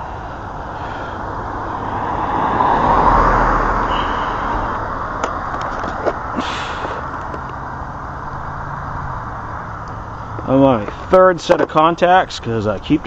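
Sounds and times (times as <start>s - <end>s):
vehicle engine and tyre noise: 0.0s - 13.0s.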